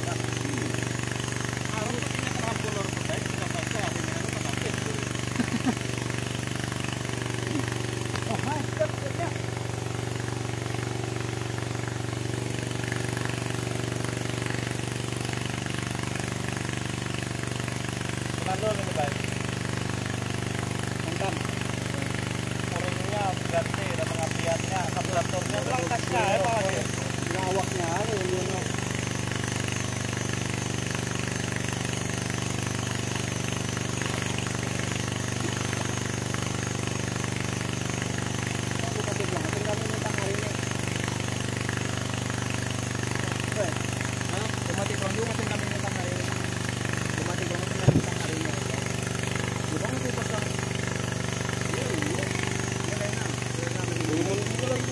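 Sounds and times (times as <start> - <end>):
chainsaw engine running steadily: 0.0 - 54.9.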